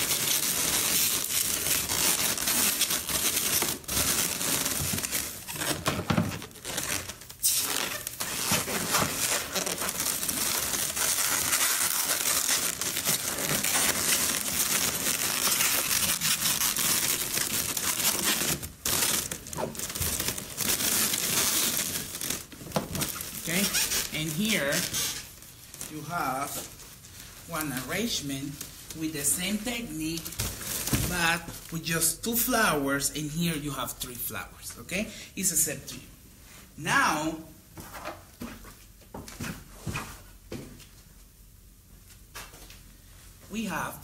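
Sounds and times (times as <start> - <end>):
balloons crinkling and rustling: 0.0 - 32.5.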